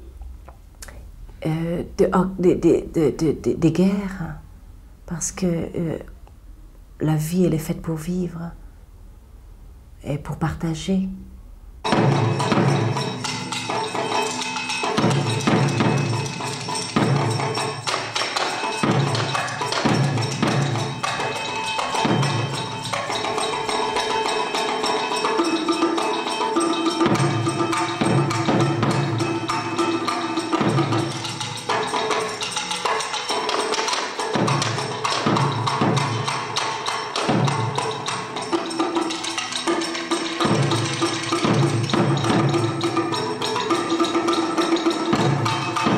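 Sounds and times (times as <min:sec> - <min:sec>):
drum strikes: 0:11.8 - 0:45.9
wood block strikes: 0:11.8 - 0:45.9.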